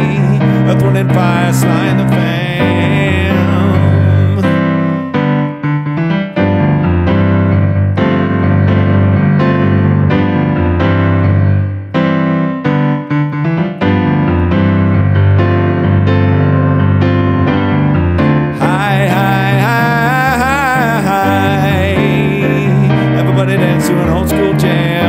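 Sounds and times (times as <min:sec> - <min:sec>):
person singing: 0:00.0 - 0:05.1, 0:18.5 - 0:25.0.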